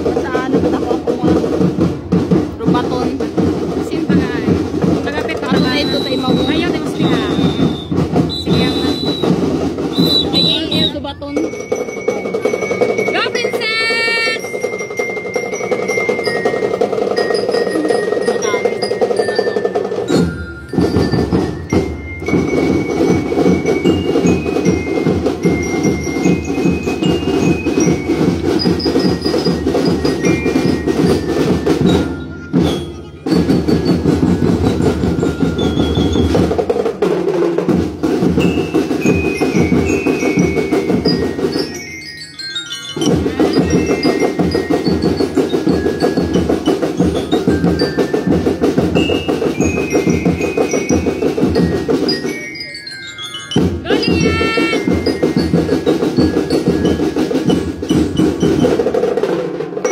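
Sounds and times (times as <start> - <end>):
drum beat: 0.0 - 59.9
bell lyre melody: 10.5 - 36.7, 38.2 - 59.0.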